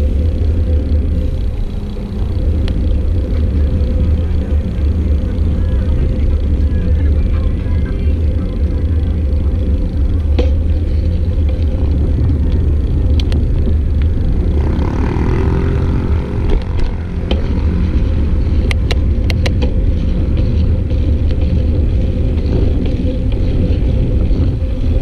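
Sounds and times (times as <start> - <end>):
wind and road noise: 0.0 - 25.0.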